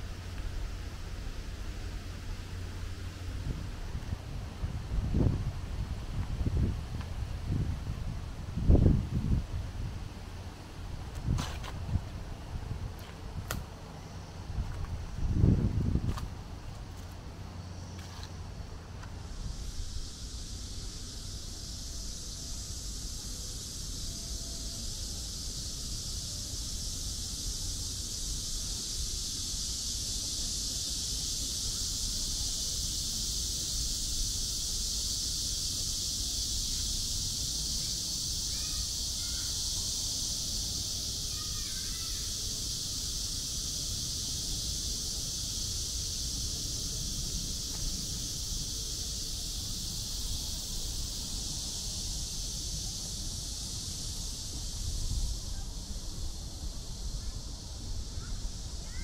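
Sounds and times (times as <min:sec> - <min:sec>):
cicadas droning: 0:00.0 - 0:59.0
wind rumble on microphone: 0:02.7 - 0:17.3.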